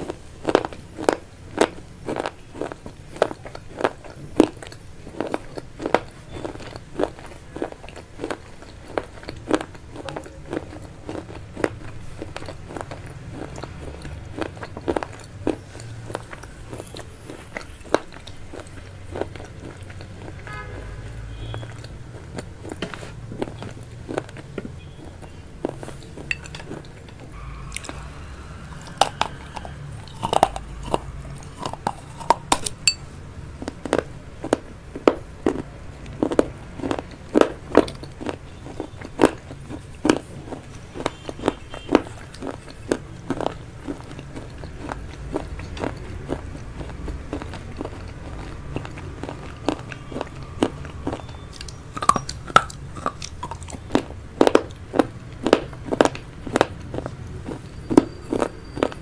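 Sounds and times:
chewing noodles: 0.0 - 59.0
sharp mouth clicks: 21.5 - 28.0, 28.8 - 59.0.

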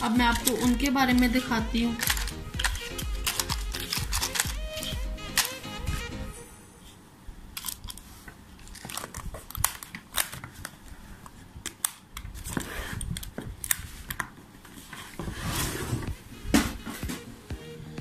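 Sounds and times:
hair pins clicking and tapping: 0.0 - 5.7
pouch rustling: 1.9 - 6.1.

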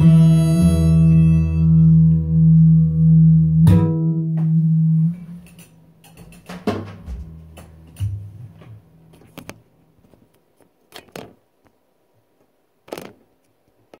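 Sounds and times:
knocks and bumps: 6.1 - 9.6.

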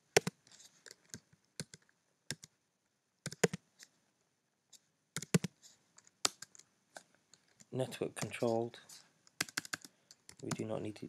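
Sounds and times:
keyboard keystrokes: 3.3 - 3.6, 5.2 - 5.5, 9.4 - 10.7.

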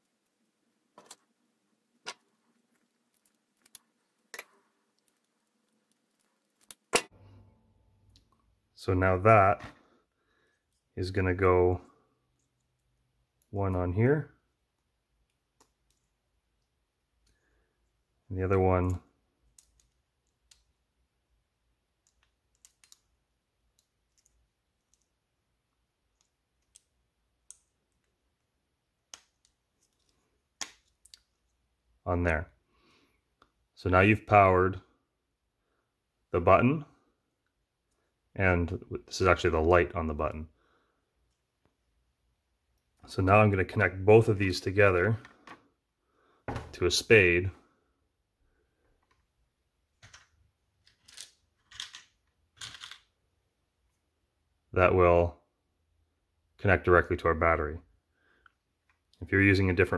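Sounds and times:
faint small clicks and taps: 14.7 - 18.0, 18.8 - 20.8, 22.0 - 28.5.

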